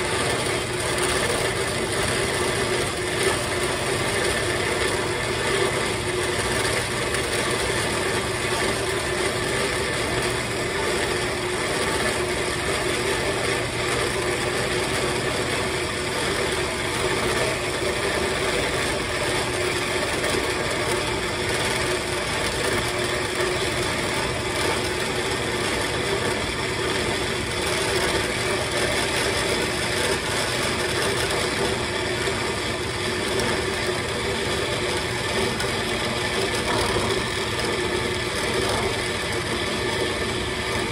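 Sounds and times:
band saw cutting metal: 0.0s - 40.9s
electric motor hum: 0.0s - 40.9s.

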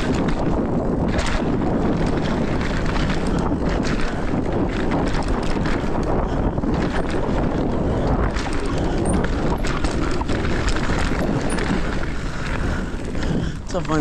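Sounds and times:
bike rattling over bumps: 0.0s - 14.0s
bike tyre noise: 0.0s - 14.0s
wind rumble on microphone: 0.0s - 14.0s.

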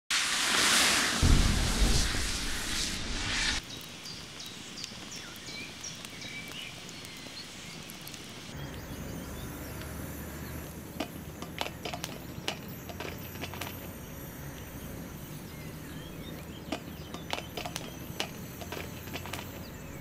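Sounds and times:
low hum: 0.2s - 3.6s
birds chirping: 3.4s - 20.0s
peppers tapping on steel griddle: 11.0s - 13.9s, 16.3s - 19.7s.

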